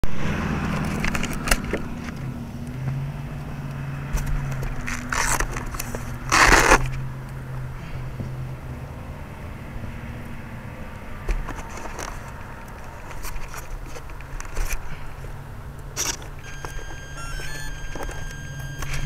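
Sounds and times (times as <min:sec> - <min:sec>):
handling clicks and rustling: 0:00.7 - 0:03.5, 0:04.2 - 0:07.0, 0:11.2 - 0:19.0.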